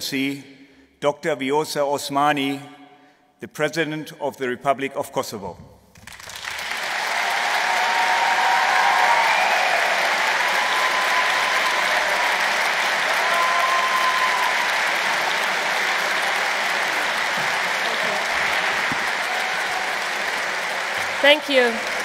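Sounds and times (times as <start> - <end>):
large audience applauding: 6.0 - 22.0.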